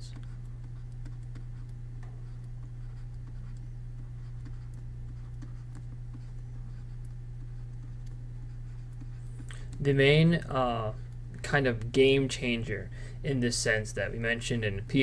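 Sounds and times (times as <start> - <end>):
stylus scratching on tablet: 0.0 - 12.1
steady low hum: 0.0 - 15.0.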